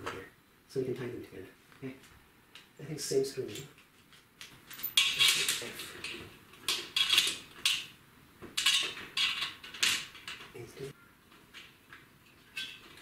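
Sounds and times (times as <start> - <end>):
metal screws clinking: 4.7 - 7.9.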